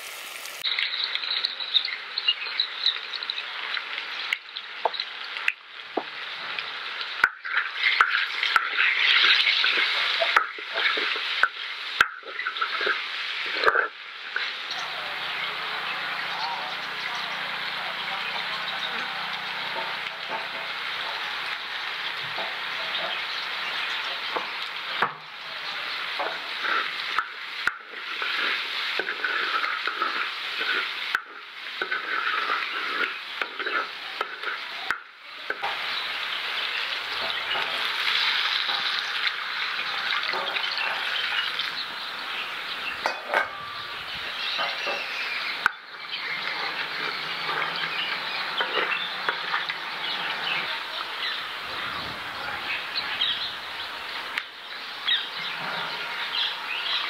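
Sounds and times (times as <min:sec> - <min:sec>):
potatoes sizzling in hot oil: 0:00.0 - 0:57.0
water hissing on hot potatoes: 0:00.0 - 0:57.0
wooden spoon scraping pot: 0:31.8 - 0:34.6.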